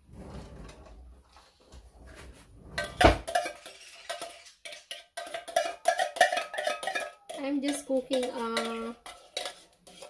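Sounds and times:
spatula scraping metal can: 0:02.8 - 0:10.0.

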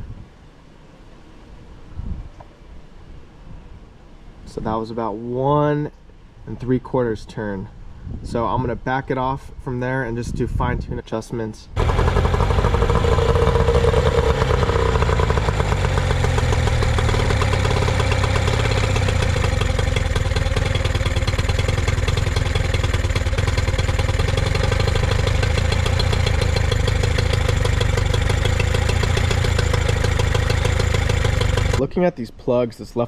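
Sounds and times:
outboard motor idling: 0:11.8 - 0:31.8.

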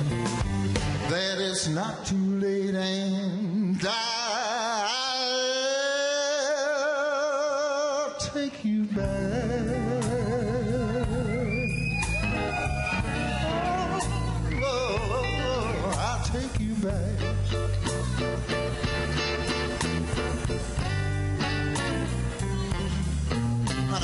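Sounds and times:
band with heavy bass line: 0:00.0 - 0:02.2, 0:09.0 - 0:24.0
person singing with vibrato: 0:01.1 - 0:11.8, 0:13.4 - 0:18.7.

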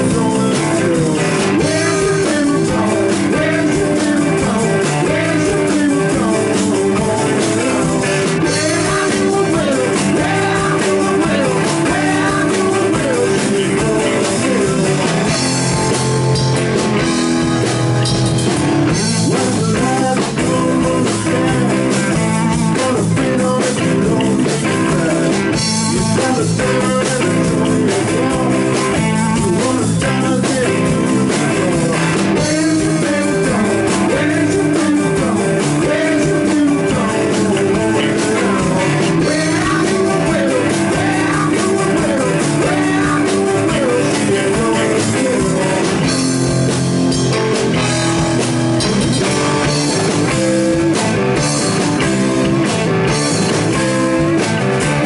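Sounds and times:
bass guitar: 0:00.0 - 0:55.0
drum kit: 0:00.0 - 0:55.0
electric guitar: 0:00.0 - 0:55.0.

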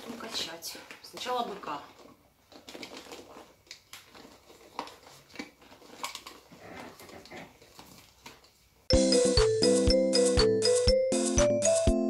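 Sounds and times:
vinyl plastic rustling and crackling: 0:00.0 - 0:08.8.

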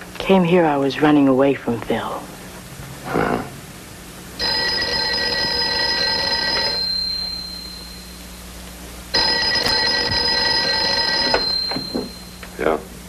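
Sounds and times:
telephone bell ringing: 0:04.4 - 0:08.2, 0:09.1 - 0:12.4.

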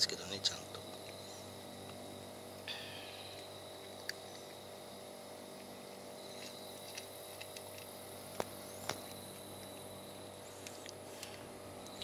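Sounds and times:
faint steady hum: 0:00.0 - 0:12.0
insects chirping: 0:00.0 - 0:12.0
cat crunching dry kibble: 0:05.8 - 0:08.6.

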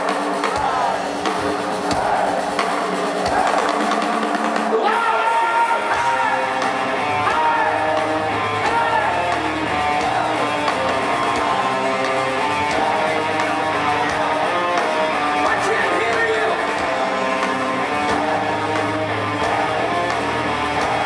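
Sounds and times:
electric guitar: 0:00.0 - 0:21.0
live rock band playing: 0:00.0 - 0:21.0
man singing: 0:12.5 - 0:21.0.

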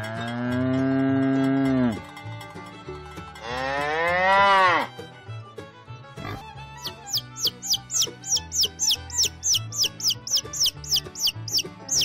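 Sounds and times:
cow mooing: 0:03.4 - 0:04.9.

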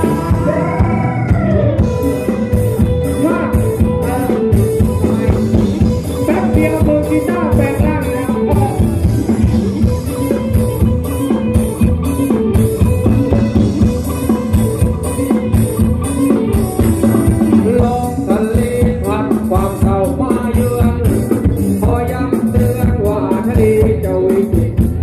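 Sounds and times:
person singing: 0:00.0 - 0:09.3, 0:17.4 - 0:25.0
guitar: 0:00.0 - 0:25.0.

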